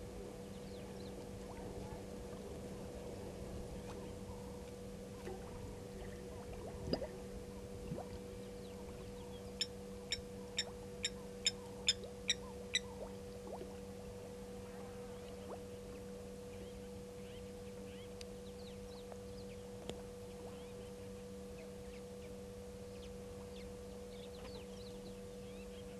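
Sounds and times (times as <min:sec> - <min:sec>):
low electrical hum: 0:00.0 - 0:25.9.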